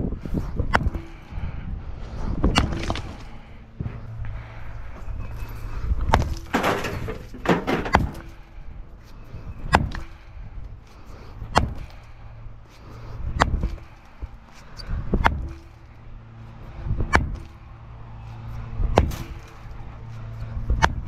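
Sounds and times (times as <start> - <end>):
sledgehammer striking concrete: 0.7 - 1.2, 2.5 - 3.2, 6.1 - 8.4, 9.7 - 10.2, 11.5 - 11.9, 13.3 - 14.0, 15.2 - 15.8, 17.0 - 17.6, 18.9 - 19.5
broken concrete rattling: 6.1 - 8.4.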